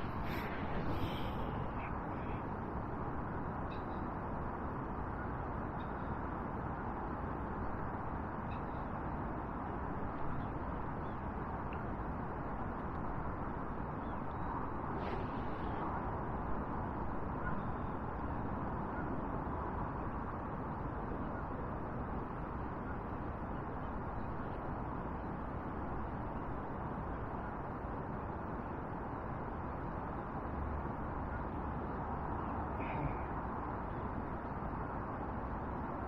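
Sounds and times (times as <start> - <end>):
rushing hiss with low rumble: 0.0 - 3.6, 11.5 - 17.4.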